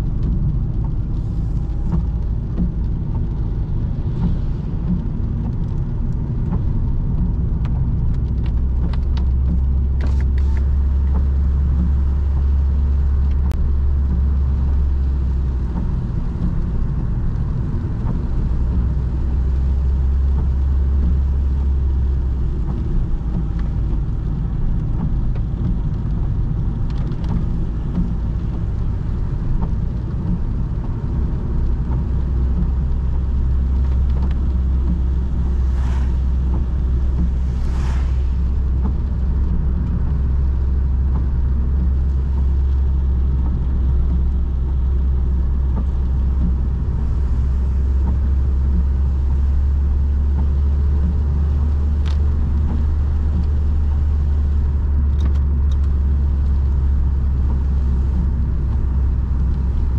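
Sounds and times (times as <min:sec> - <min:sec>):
car engine drone and road noise: 0:00.0 - 0:59.9
brief rushing hisses: 0:35.6 - 0:36.4, 0:37.2 - 0:38.6.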